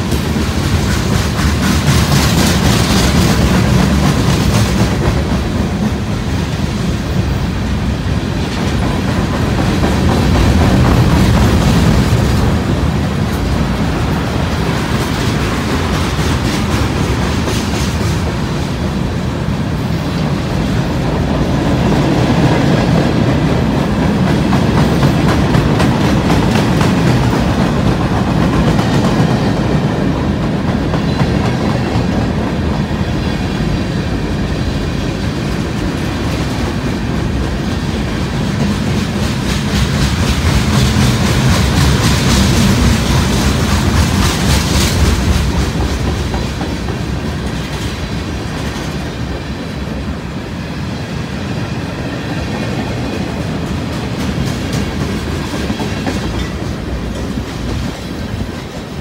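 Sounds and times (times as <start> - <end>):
rhythmic clickety-clack: 0.0 - 6.2, 8.5 - 13.6, 22.3 - 32.6, 38.4 - 49.1, 53.6 - 58.6
train wheels rumbling on rails: 0.0 - 59.0.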